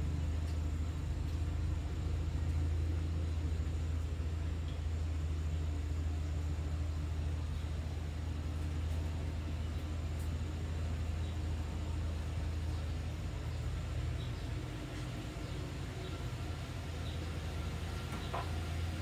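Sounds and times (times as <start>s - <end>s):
low mechanical hum with hiss: 0.0s - 19.0s.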